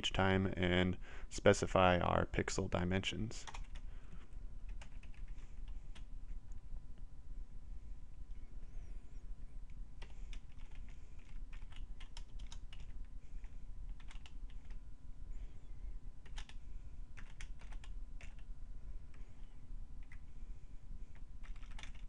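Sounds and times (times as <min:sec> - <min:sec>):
steady low hum: 0:00.0 - 0:22.0
keyboard typing: 0:03.4 - 0:03.8, 0:04.7 - 0:06.1, 0:10.0 - 0:14.8, 0:16.2 - 0:16.6, 0:17.2 - 0:18.5, 0:19.1 - 0:20.2, 0:21.1 - 0:22.0.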